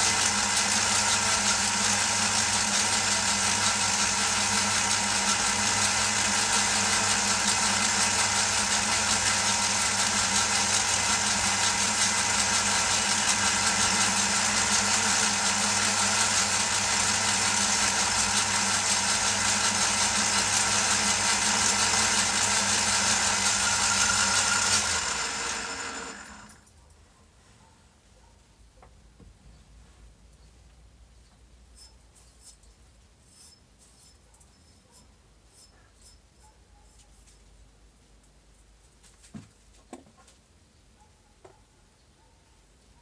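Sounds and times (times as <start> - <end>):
metal lathe running: 0.0 - 26.6.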